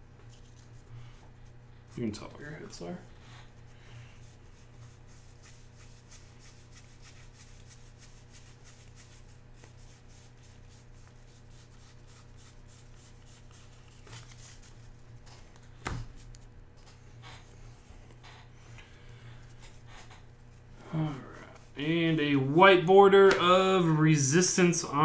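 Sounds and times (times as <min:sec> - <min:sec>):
steady low hum: 0:00.0 - 0:25.0
trading cards flicking and rubbing: 0:00.2 - 0:21.8.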